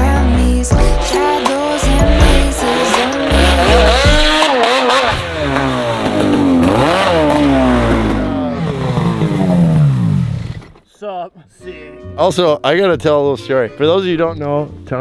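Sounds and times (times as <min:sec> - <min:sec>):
snowmobile engine revving: 0:01.0 - 0:10.8.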